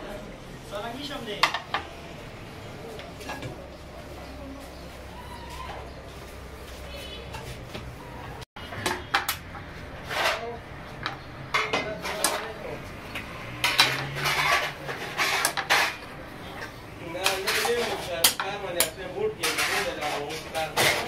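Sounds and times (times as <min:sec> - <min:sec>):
metal spoon scraping and clinking: 0:13.6 - 0:16.2, 0:17.2 - 0:21.0.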